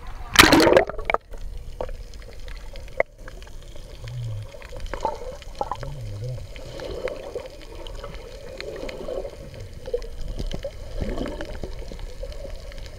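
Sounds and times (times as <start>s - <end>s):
underwater bubbling: 0.0s - 12.9s
loud splash: 0.3s - 1.2s
small underwater clicks: 0.3s - 12.9s.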